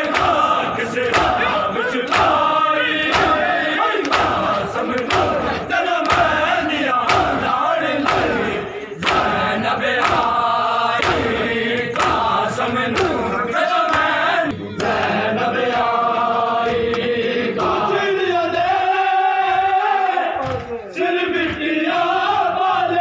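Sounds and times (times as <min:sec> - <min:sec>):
chest-beating slaps: 0:00.0 - 0:15.0
crowd of men chanting in unison: 0:00.0 - 0:23.0.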